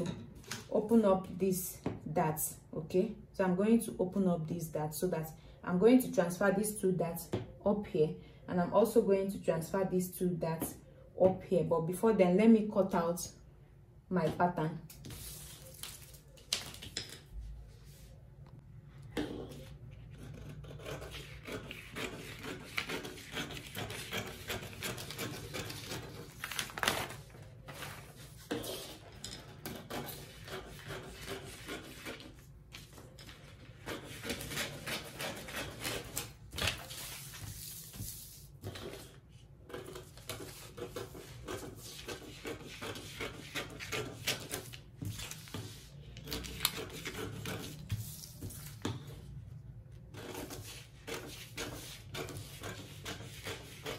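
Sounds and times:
paper rustling: 15.0 - 17.2, 25.1 - 28.4, 35.3 - 39.0, 44.6 - 47.0.

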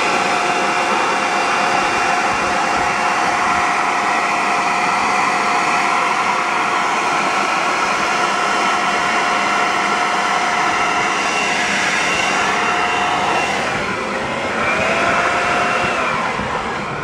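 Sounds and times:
electric air blower whining: 0.0 - 17.0
rush of air: 5.8 - 17.0.

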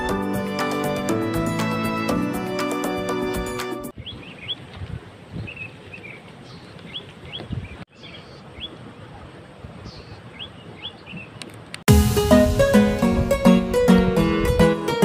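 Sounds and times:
small birds chirping: 3.9 - 8.8, 9.8 - 11.6.

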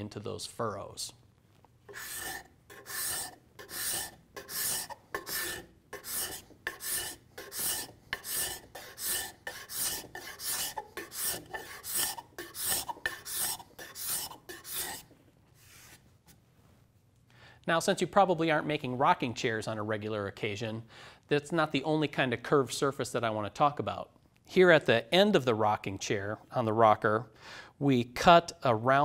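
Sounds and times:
card scraper rasping on wood: 1.9 - 15.1.

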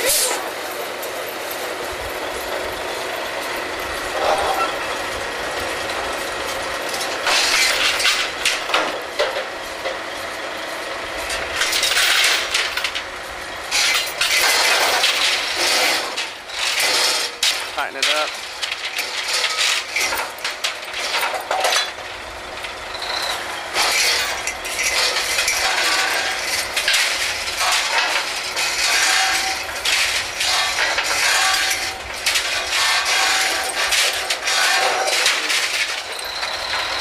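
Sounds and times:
machinery running: 0.0 - 37.0
metal clanks and knocks: 6.5 - 10.0, 11.2 - 13.1, 13.7 - 37.0.

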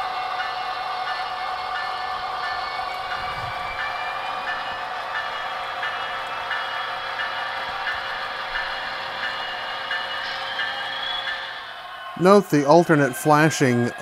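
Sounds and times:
diesel locomotive engine hum: 0.0 - 14.0.

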